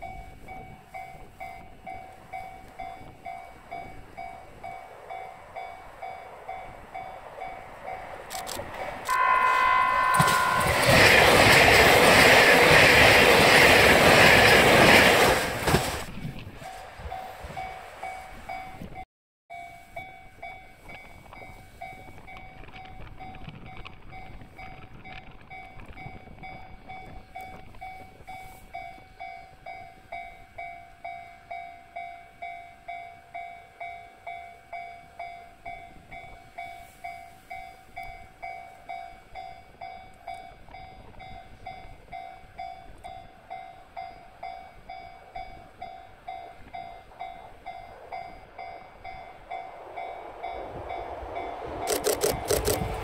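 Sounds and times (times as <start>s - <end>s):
level crossing warning bell: 0.0s - 15.0s, 16.6s - 53.0s
approaching diesel locomotive rumble: 0.0s - 19.0s, 33.7s - 53.0s.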